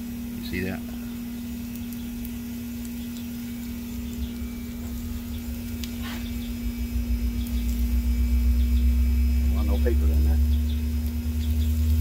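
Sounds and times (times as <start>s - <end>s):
steady low hum: 0.0s - 12.0s
deep rumble: 3.8s - 12.0s.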